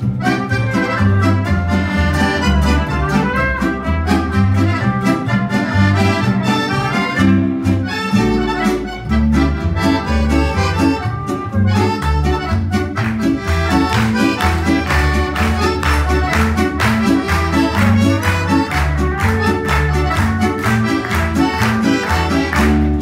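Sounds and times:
accordion: 0:00.0 - 0:23.0
mandolin and guitar strumming: 0:00.0 - 0:23.0
plucked double bass: 0:00.0 - 0:23.0
hand claps: 0:09.9 - 0:23.0.

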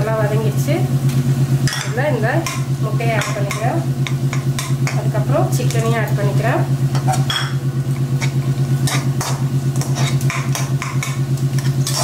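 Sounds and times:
low pulsing hum: 0:00.0 - 0:12.0
spatula scraping frying pan: 0:08.1 - 0:12.0.

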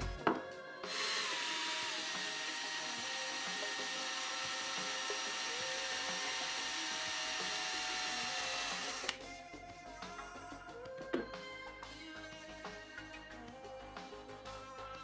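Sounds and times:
drill press cutting metal: 0:00.8 - 0:09.2.

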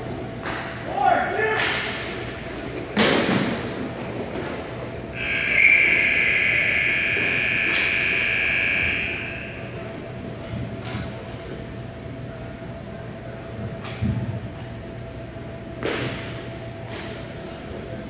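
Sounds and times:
high-pitched buzzer: 0:05.2 - 0:09.6.

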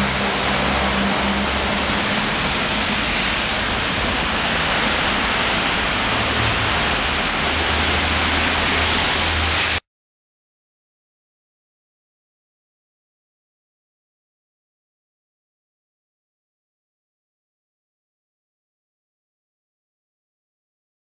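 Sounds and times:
rain hissing: 0:00.0 - 0:09.8.

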